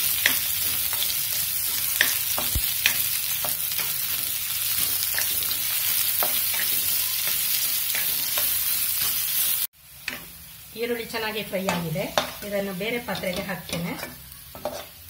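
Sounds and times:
onions sizzling in hot fat: 0.0 - 15.0
wooden spatula scraping a pan: 12.1 - 15.0.

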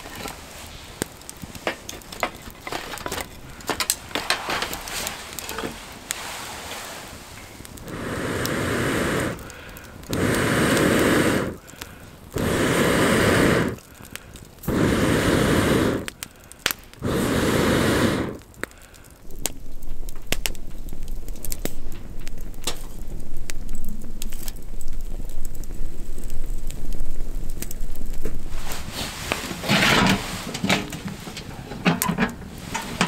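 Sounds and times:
firewood crackling and popping: 0.0 - 33.0
breaths blown through a pipe: 12.4 - 13.8.

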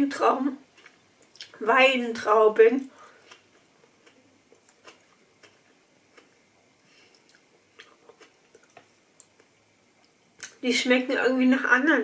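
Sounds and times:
faint chewing: 0.6 - 1.6, 2.8 - 10.6.

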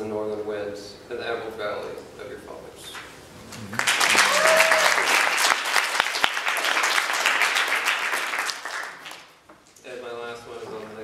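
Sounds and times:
audience applauding: 3.6 - 9.3.

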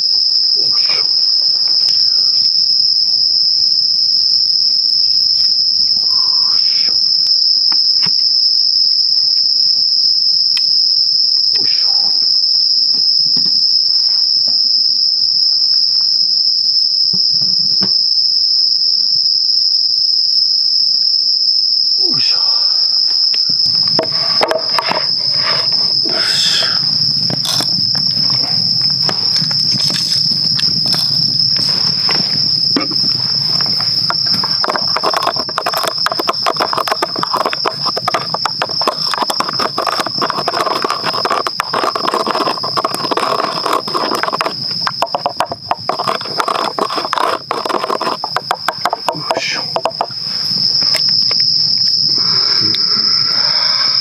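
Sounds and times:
night insects chirring: 0.0 - 54.0
wooden sticks knocking and rustling: 24.0 - 25.0, 34.1 - 50.1.

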